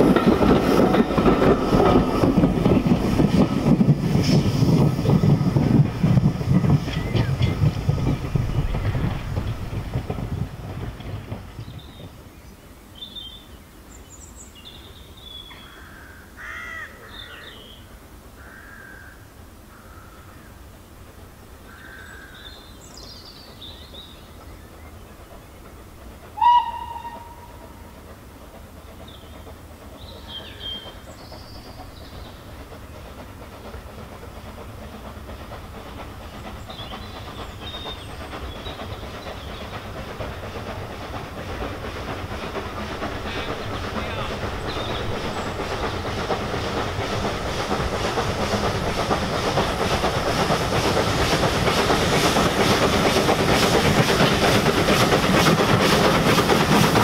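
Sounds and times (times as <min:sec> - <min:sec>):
steam train running: 0:00.0 - 0:57.0
steam locomotive whistle: 0:26.4 - 0:27.9
small birds chirping: 0:43.2 - 0:46.4.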